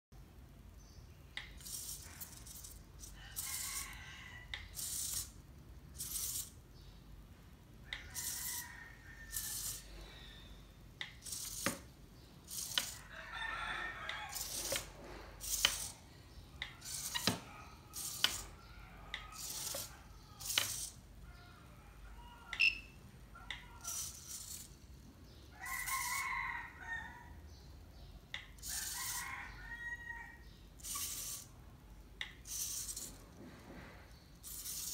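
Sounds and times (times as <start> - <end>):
servos buzzing: 1.4 - 6.6, 7.9 - 8.7, 9.3 - 10.2, 11.0 - 13.1, 14.2 - 21.0, 23.8 - 24.8, 30.8 - 31.5, 32.2 - 33.3, 34.4 - 34.9.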